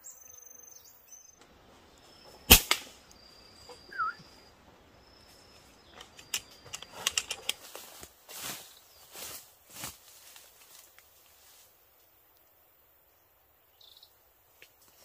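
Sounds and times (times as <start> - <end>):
bird chirp: 0.0 - 7.7, 13.6 - 14.2
sharp gunshot: 2.5 - 3.0
light clicks and rustles: 5.8 - 8.1.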